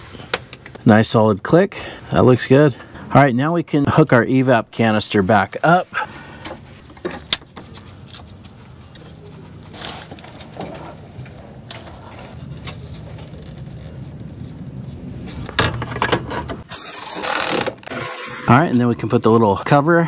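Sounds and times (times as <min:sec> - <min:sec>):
rustle: 0:06.6 - 0:15.6.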